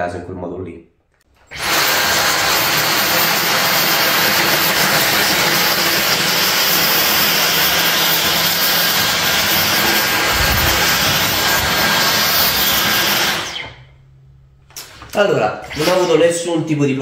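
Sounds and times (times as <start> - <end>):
vacuum cleaner running: 1.5 - 14.0, 15.6 - 16.3
low rumble: 10.1 - 11.9.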